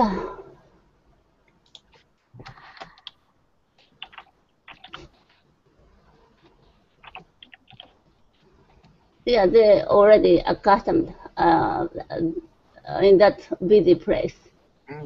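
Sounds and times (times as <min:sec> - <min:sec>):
computer keyboard typing: 0:01.6 - 0:05.4, 0:06.4 - 0:09.0.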